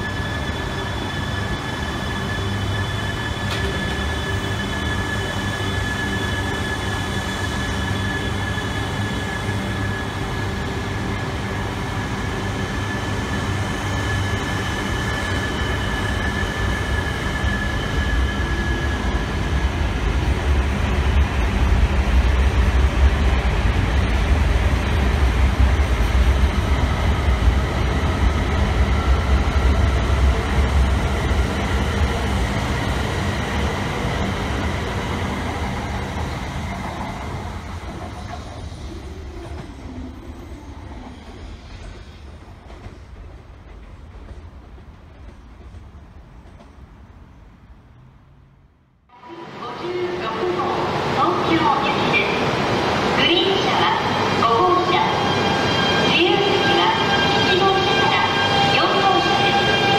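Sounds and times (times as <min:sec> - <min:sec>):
train electric whine: 0:00.0 - 0:20.7
train wheels rumbling on rails: 0:00.0 - 0:48.0.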